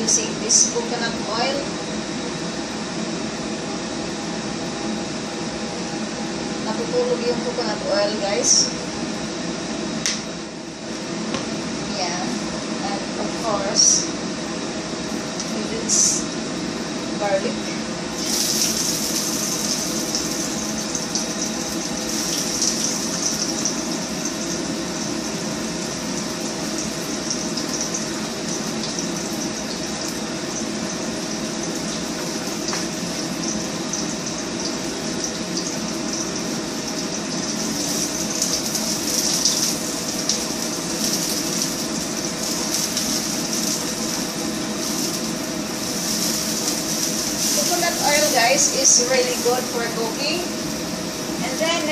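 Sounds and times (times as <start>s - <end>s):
garlic sizzling in oil: 18.1s - 51.9s.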